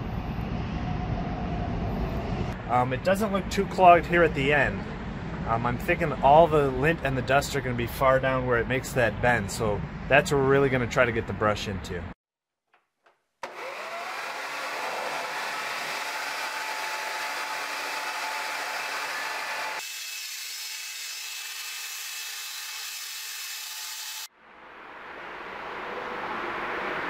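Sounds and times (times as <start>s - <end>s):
leaf blower running: 13.4s - 19.8s.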